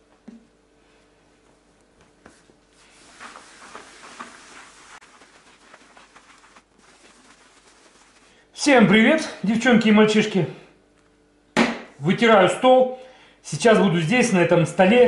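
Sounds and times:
cloth rubbing on tiles: 2.2 - 8.6.

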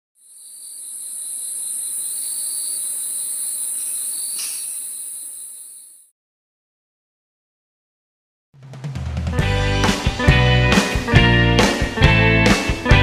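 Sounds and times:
crickets trilling: 0.2 - 6.1.

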